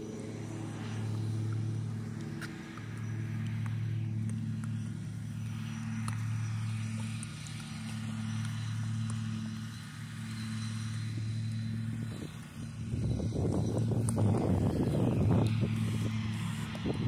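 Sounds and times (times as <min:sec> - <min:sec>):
engine humming steadily: 0:00.0 - 0:17.0
faint light clicks: 0:01.1 - 0:05.0, 0:05.7 - 0:09.9.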